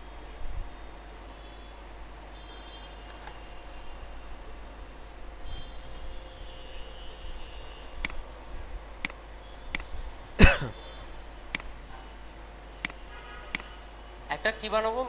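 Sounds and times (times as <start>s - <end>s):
keyboard and mouse clicks: 11.5s - 11.7s.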